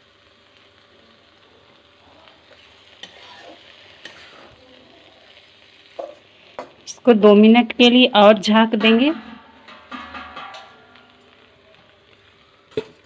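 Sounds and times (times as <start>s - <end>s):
okra frying and hissing: 0.0s - 13.0s
metal spatula scraping pan: 3.0s - 4.5s.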